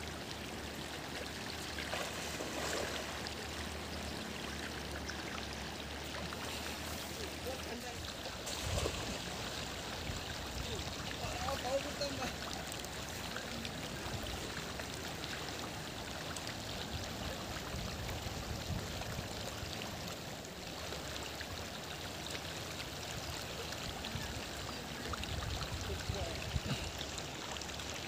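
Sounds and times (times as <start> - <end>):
river current rushing: 1.6 - 4.1.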